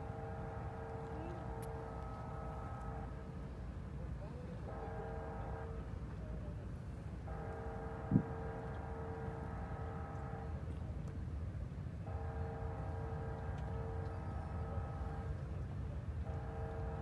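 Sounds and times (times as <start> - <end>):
train horn chord blasts: 7.2 - 10.6, 12.0 - 15.4, 16.2 - 17.0.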